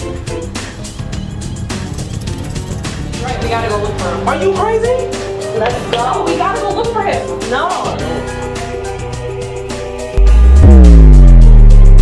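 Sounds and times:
music with a beat: 0.0 - 12.0.

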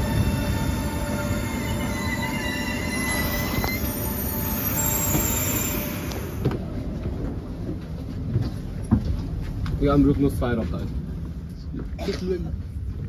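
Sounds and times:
train squealing: 0.0 - 7.2
low hum inside train: 0.0 - 13.0.

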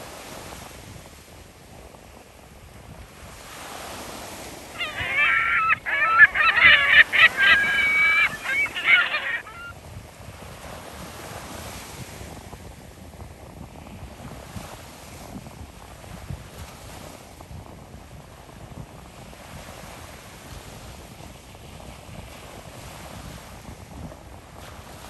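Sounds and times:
wind: 0.0 - 25.0
gulls calling: 4.8 - 9.7
small waves washing: 4.8 - 9.7.

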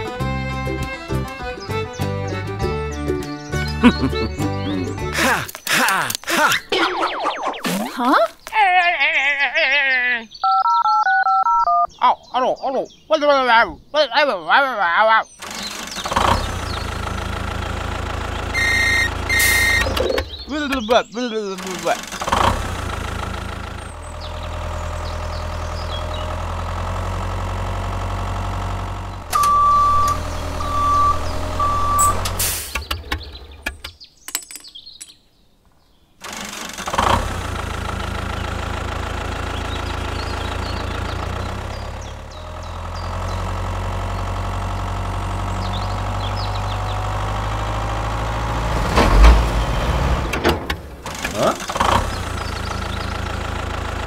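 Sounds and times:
tractor engine idling: 15.4 - 33.9, 36.2 - 54.0.

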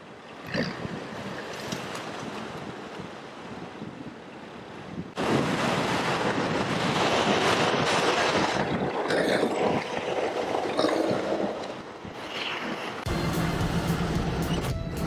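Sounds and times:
vehicle engine running: 13.1 - 15.0.

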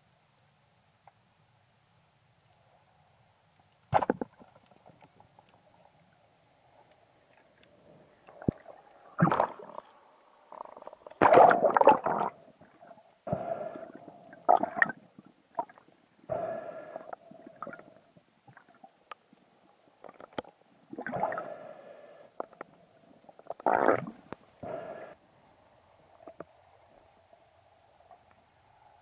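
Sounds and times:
underwater rushing and gurgling: 6.6 - 18.8, 20.1 - 22.2, 23.4 - 25.2.

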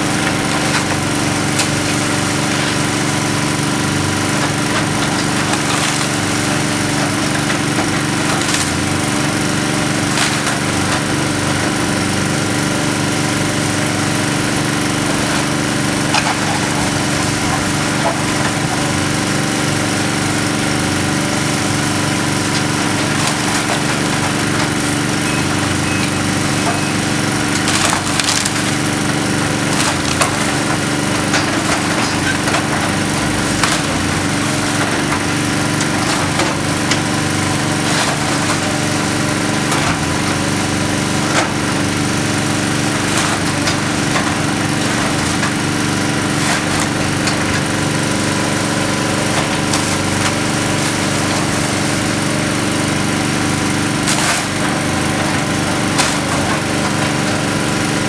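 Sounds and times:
excavator diesel engine running: 0.0 - 58.0
wood and rubble breaking: 0.0 - 58.0.

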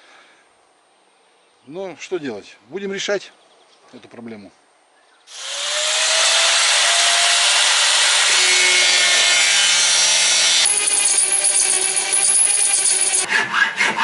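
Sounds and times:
power tool running: 5.3 - 13.3.

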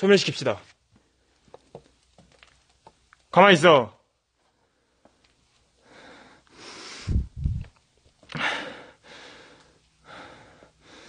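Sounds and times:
person breathing heavily: 5.8 - 7.4, 8.3 - 11.0.

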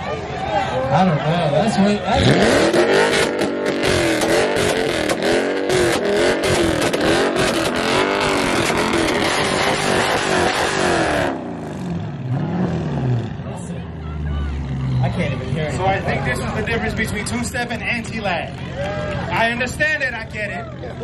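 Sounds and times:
car engine revving on limiter: 1.5 - 13.6
exhaust pops crackling: 2.8 - 11.0.

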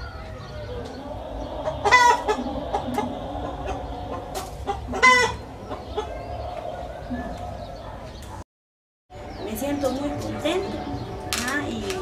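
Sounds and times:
chickens clucking: 0.0 - 8.4.

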